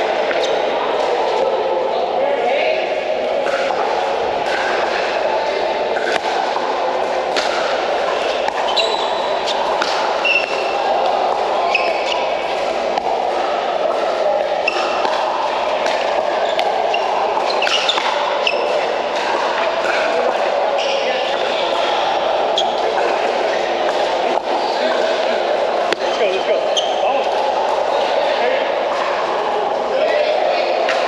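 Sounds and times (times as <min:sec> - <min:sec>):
large hall background din: 0:00.0 - 0:31.0
sneakers squeaking on court: 0:08.4 - 0:10.7, 0:16.4 - 0:18.8.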